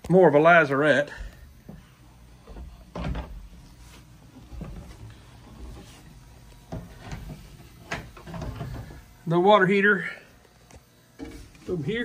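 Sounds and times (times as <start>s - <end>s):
knocks and footfalls on ladder: 1.2s - 3.6s, 4.3s - 6.0s, 6.6s - 9.0s.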